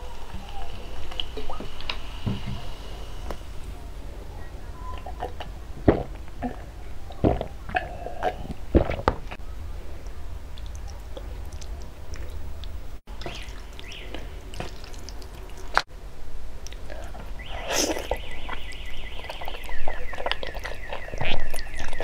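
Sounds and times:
low steady hum: 0:00.0 - 0:22.0
gulping drink: 0:04.9 - 0:09.2, 0:16.8 - 0:22.0
slurping wet noodles: 0:17.1 - 0:22.0.

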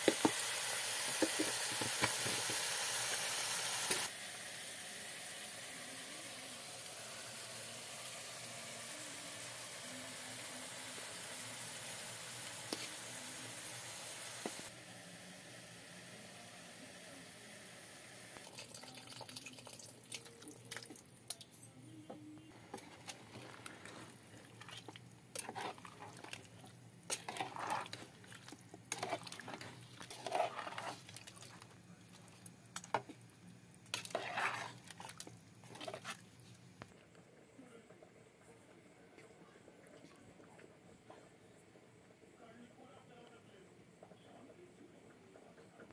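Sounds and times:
metal ladle scraping pot: 0:22.7 - 0:26.5, 0:27.1 - 0:31.4, 0:33.9 - 0:36.2.

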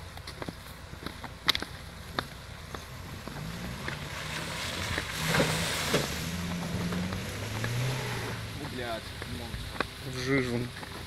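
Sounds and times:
off-road vehicle engine revving: 0:02.1 - 0:10.9.

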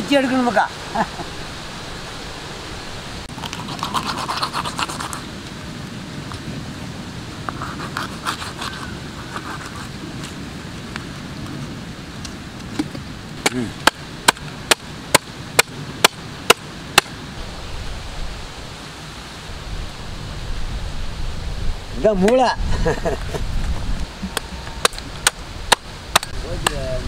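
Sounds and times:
knife cutting flesh and cartilage: 0:03.4 - 0:05.2, 0:07.6 - 0:09.9.

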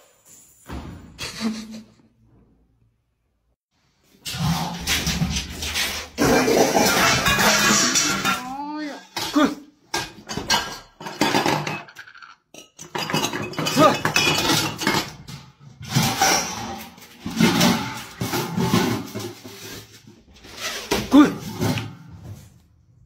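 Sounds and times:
metal pots and pans clanking: 0:04.3 - 0:20.0.

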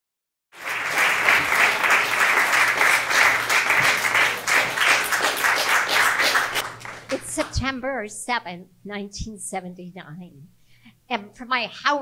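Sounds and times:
audience applauding: 0:00.6 - 0:07.5.

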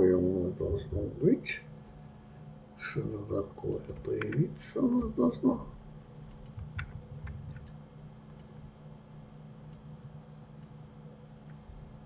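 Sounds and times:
low electrical hum: 0:00.0 - 0:12.0
mouse and keyboard clicks: 0:06.2 - 0:07.8.

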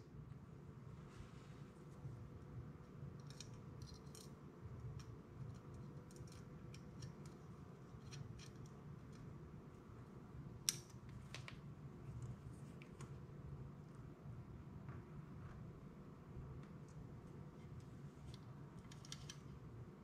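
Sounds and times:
small metallic clicks and scrapes: 0:03.1 - 0:09.3, 0:17.6 - 0:19.6.

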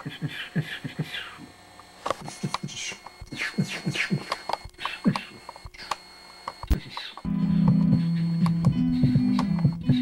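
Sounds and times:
person making rapid syllables: 0:00.0 - 0:01.5, 0:02.2 - 0:05.8.

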